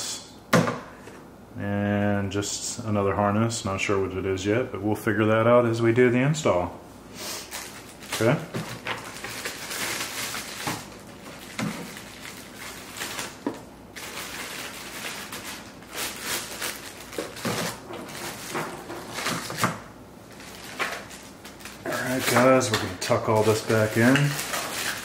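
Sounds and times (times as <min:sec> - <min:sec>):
plastic bags crinkling: 0:07.4 - 0:25.0.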